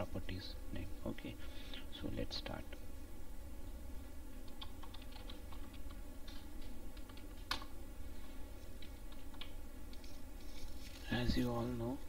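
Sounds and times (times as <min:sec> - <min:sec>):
typing on computer keyboard: 0:04.5 - 0:06.0.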